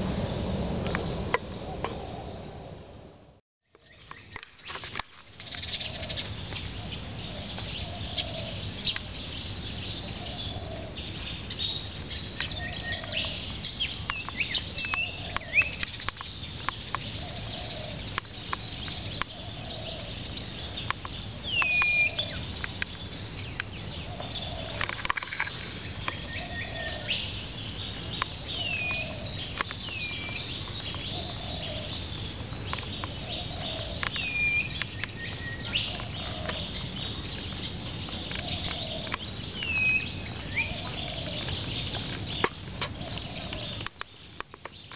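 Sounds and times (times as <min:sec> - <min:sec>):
dove cooing: 0:01.6 - 0:02.8, 0:05.4 - 0:08.9, 0:10.0 - 0:11.3, 0:14.6 - 0:15.7, 0:17.0 - 0:20.7, 0:21.5 - 0:22.4, 0:23.9 - 0:25.1, 0:26.1 - 0:27.3, 0:28.3 - 0:32.1, 0:32.9 - 0:37.2, 0:37.8 - 0:43.9
small birds chirping: 0:03.7 - 0:44.9.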